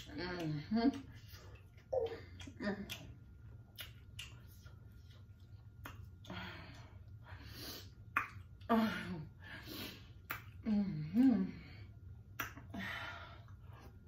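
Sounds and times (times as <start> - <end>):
mouth clicks and smacks: 0.0 - 6.3, 8.0 - 8.7, 10.2 - 10.6, 12.2 - 12.8.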